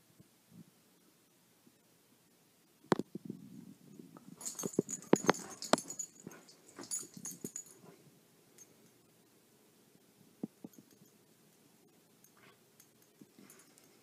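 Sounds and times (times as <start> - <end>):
dog paws scuffing carpet: 4.4 - 7.5
high rattle: 4.4 - 7.8.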